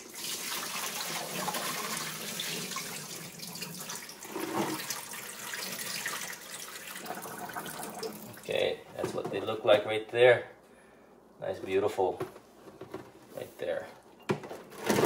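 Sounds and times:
water pouring into steel sink: 0.0s - 8.5s.

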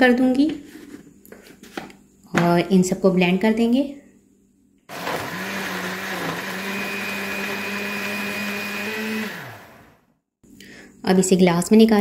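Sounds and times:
blender whirring: 4.9s - 10.1s.

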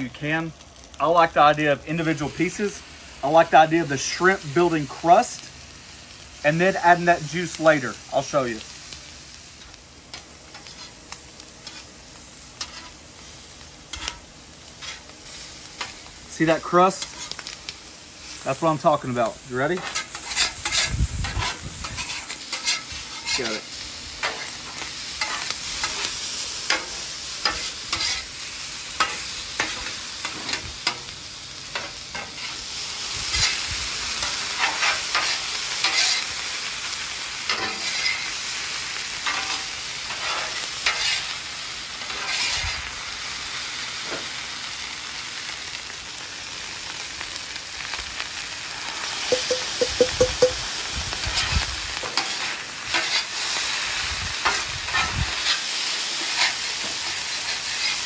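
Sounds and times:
food sizzling on griddle: 0.0s - 58.0s
metal spatula scraping: 11.6s - 11.9s, 12.6s - 13.0s, 19.8s - 23.5s, 34.6s - 36.3s, 42.1s - 42.7s.

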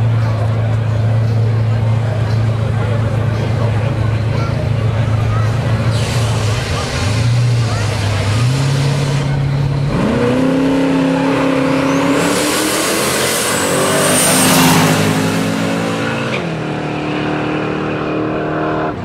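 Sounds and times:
drag car engines revving: 0.0s - 19.0s
tyre squeal: 11.3s - 15.0s.

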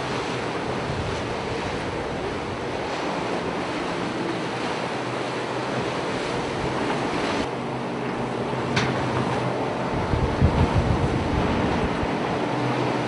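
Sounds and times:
rushing sea water: 0.0s - 13.0s
wind buffeting microphone: 0.0s - 13.0s.

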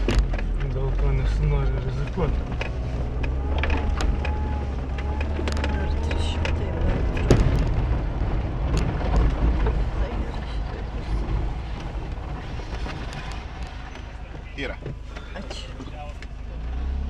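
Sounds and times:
sharp knocks and clicks: 0.0s - 10.2s
car engine low rumble: 0.0s - 17.0s.

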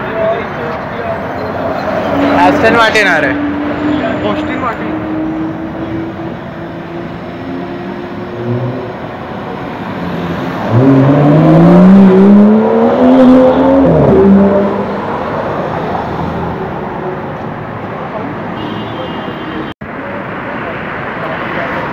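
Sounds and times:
city traffic hum: 0.0s - 21.9s
sports car accelerating past: 9.6s - 16.5s.

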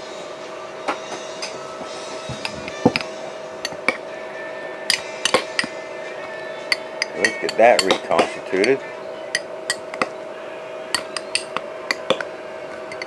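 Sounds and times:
steady hum: 0.0s - 13.0s
dishes clinking: 0.9s - 4.0s, 4.9s - 5.8s, 6.6s - 10.1s, 10.9s - 13.0s.

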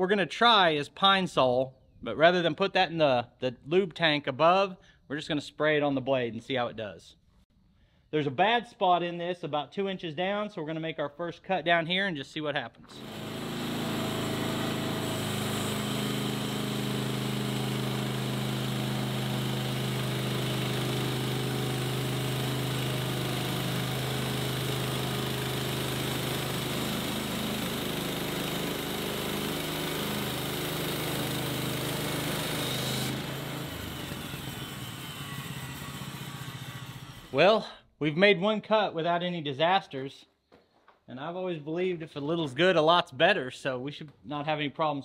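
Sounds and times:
small gas engine running: 12.9s - 37.4s
band saw cutting wood: 12.9s - 37.5s.

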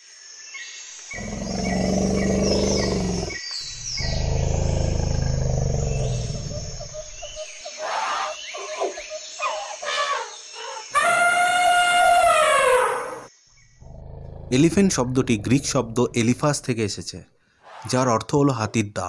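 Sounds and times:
birds chirping: 1.0s - 18.7s
large animal roaring: 1.1s - 7.4s, 13.8s - 16.7s
sharp animal calls: 1.1s - 16.5s.

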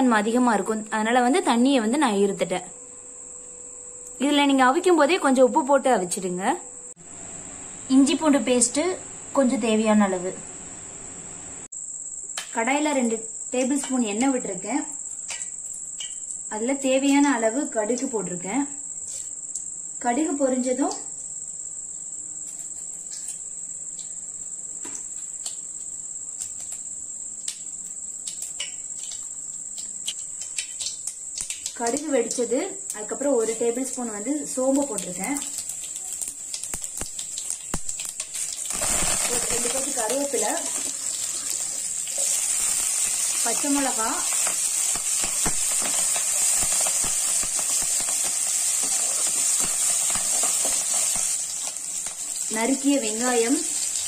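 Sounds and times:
steady high-pitched whine: 0.0s - 11.9s
mustard seeds popping in oil: 15.2s - 16.4s, 24.8s - 54.0s.

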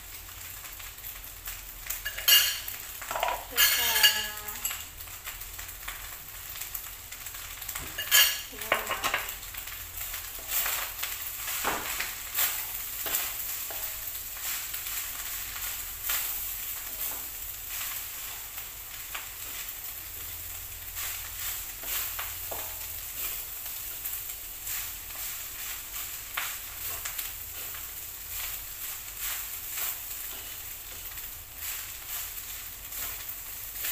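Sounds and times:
food sizzling in a wok: 0.0s - 33.9s
spatula scraping and knocking pan: 2.0s - 4.8s, 11.5s - 15.0s, 21.0s - 24.0s, 24.7s - 33.9s.

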